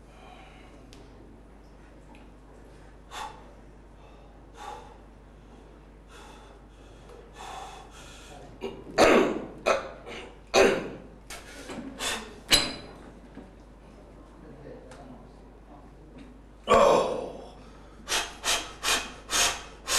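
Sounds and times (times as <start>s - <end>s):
man's short forceful breaths: 11.3s - 12.4s, 17.7s - 19.9s.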